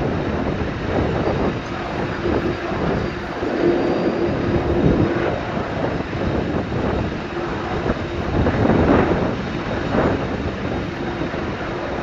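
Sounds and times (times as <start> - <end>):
de-icing trucks rumbling and hissing: 0.0 - 12.0
hum: 0.0 - 12.0.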